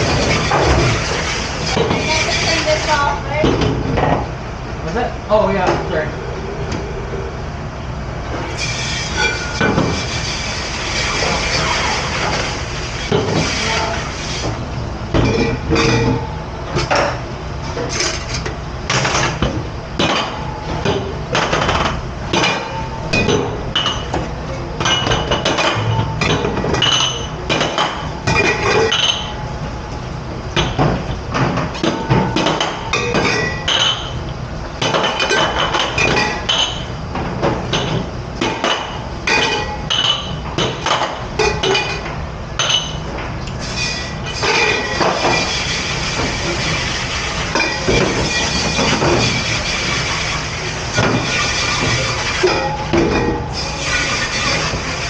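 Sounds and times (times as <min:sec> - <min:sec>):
low steady rumble: 0:00.0 - 0:34.9
dishes and cutlery clattering: 0:15.2 - 0:16.2, 0:24.8 - 0:29.4, 0:31.8 - 0:34.2, 0:44.3 - 0:46.7, 0:47.4 - 0:50.3.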